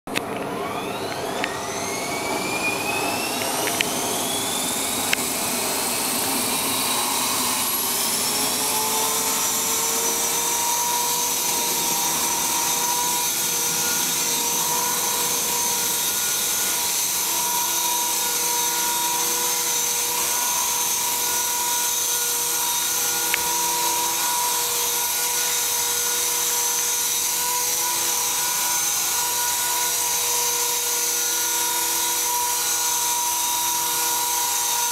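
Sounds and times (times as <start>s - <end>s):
model helicopter rotor whine: 0.1s - 34.9s.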